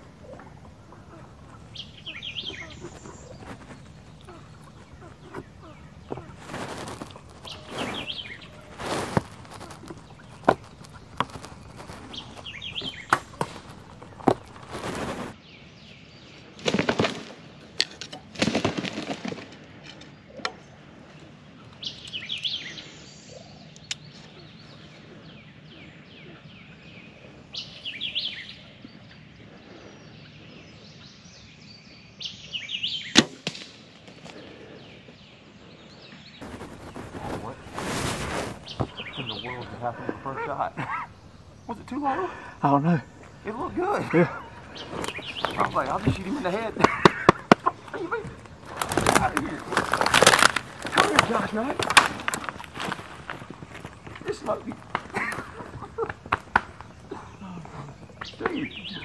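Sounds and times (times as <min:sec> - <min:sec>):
rustling: 0:00.0 - 0:15.4, 0:36.4 - 0:59.0
turkey gobbling: 0:00.0 - 0:15.4, 0:37.0 - 0:49.8.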